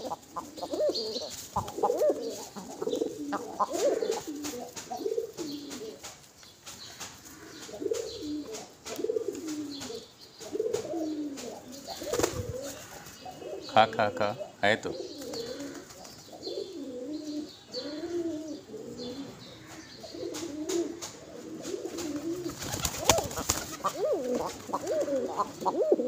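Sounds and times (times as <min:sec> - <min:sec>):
pigeons cooing: 0:00.0 - 0:06.2, 0:06.9 - 0:26.0
beaks pecking grain from palm: 0:00.0 - 0:13.2, 0:19.7 - 0:26.0.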